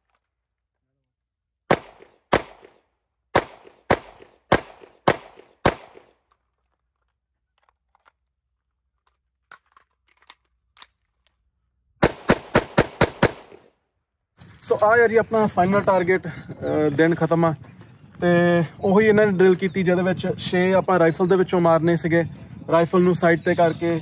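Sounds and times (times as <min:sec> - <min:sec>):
rapid rifle fire: 0:01.7 - 0:02.8, 0:03.4 - 0:06.1, 0:12.0 - 0:13.6
pistol shots: 0:01.7 - 0:06.2, 0:12.0 - 0:13.7.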